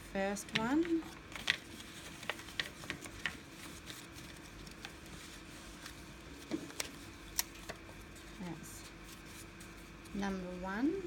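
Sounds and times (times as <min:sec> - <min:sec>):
faint steady hum: 0:00.0 - 0:11.0
paper crinkling: 0:00.5 - 0:10.4.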